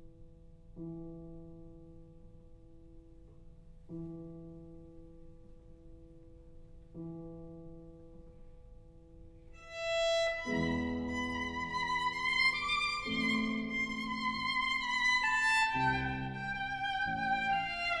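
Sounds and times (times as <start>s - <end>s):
solo violin melody: 9.6s - 18.0s.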